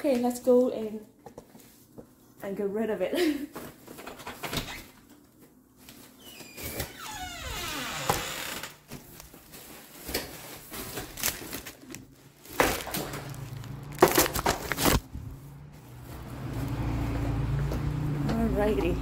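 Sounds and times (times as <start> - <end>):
plastic bags crinkling: 8.8 - 17.1
handling knocks and bumps: 12.4 - 15.4.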